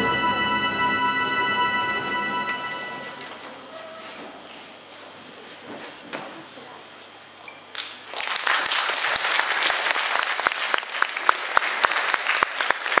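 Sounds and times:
audience applauding: 8.1s - 13.0s.

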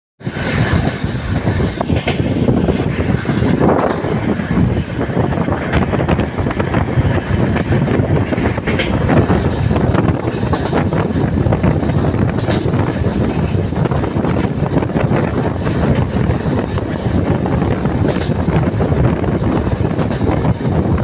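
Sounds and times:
sharp rail clacks: 0.2s - 21.0s
train wheels rumbling on rails: 0.2s - 21.0s.

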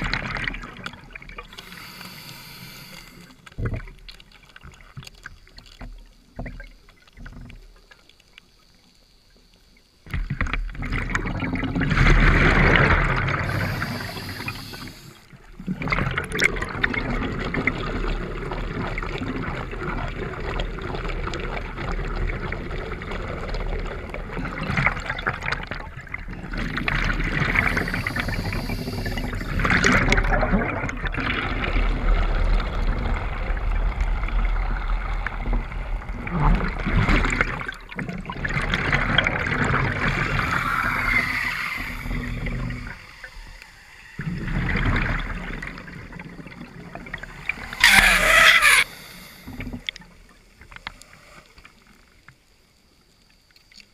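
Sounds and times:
higher hiss: 1.5s - 3.4s, 13.4s - 15.3s, 27.5s - 29.6s, 40.2s - 44.2s, 47.2s - 49.6s
exhaled bubbles rushing: 10.7s - 15.0s, 15.6s - 50.0s.

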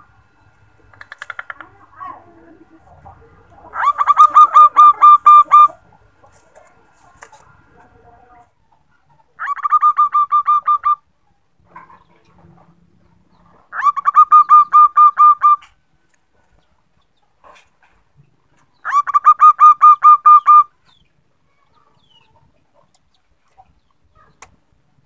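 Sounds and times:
dove cooing: 0.8s - 6.1s, 9.4s - 11.0s, 13.5s - 15.8s, 18.8s - 20.7s.

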